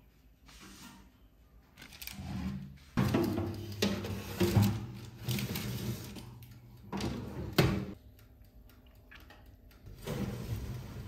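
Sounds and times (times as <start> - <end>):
metal baking tray sliding on rack: 3.7 - 6.2, 10.0 - 11.0.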